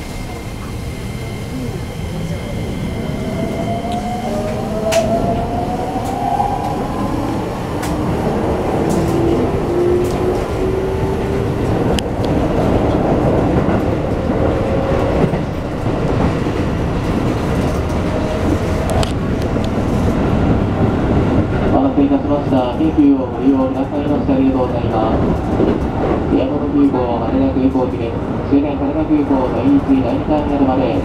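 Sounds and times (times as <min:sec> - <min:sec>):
train inverter and motors whining: 0:00.0 - 0:20.6.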